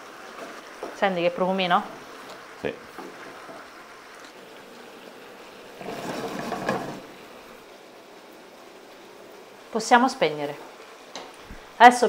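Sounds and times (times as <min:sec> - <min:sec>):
food simmering and sizzling in pan: 0:00.0 - 0:12.0
wooden spoons stirring: 0:05.8 - 0:07.1.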